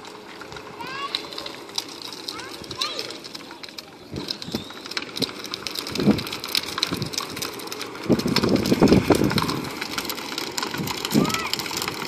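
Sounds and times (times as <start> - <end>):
plastic wheels rattling on asphalt: 0.0 - 12.0.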